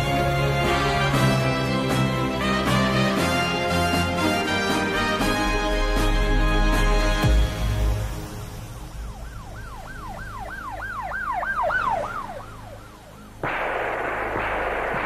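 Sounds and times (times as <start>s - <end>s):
music: 0.0s - 9.6s
siren wailing: 8.7s - 15.0s.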